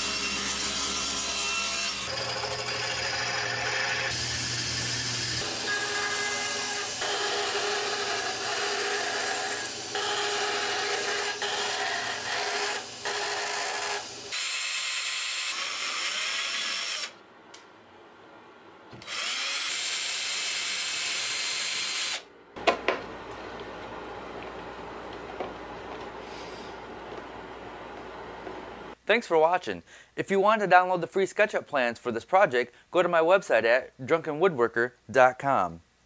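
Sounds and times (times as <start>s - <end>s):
bandsaw cutting wood: 0.0s - 17.2s, 19.0s - 22.2s
power drill boring into wood: 2.0s - 17.2s, 19.0s - 22.2s.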